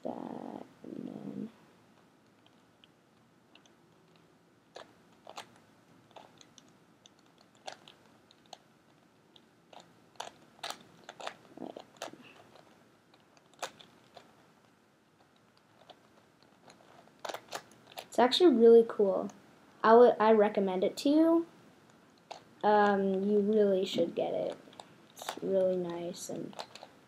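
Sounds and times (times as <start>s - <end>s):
plastic puzzle clicking: 2.2s - 14.4s, 15.2s - 18.1s, 21.9s - 23.6s, 24.5s - 27.0s.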